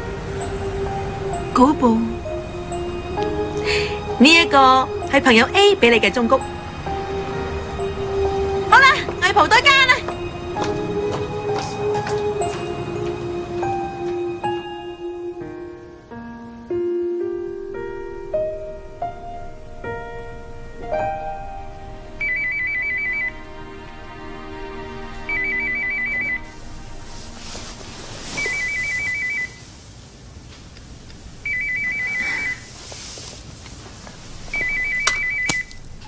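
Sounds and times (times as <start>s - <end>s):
soft piano music: 0.0s - 29.8s
mobile phone ringing: 22.2s - 23.4s, 25.2s - 26.6s, 28.4s - 29.6s, 31.4s - 32.8s, 34.5s - 35.8s.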